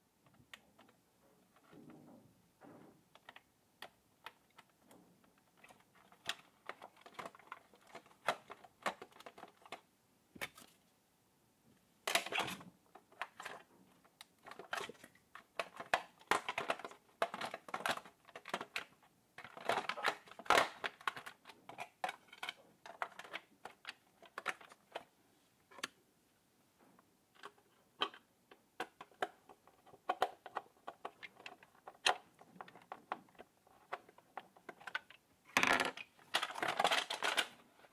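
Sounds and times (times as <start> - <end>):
hard plastic clicking and tapping: 12.1 - 25.1, 26.9 - 37.5.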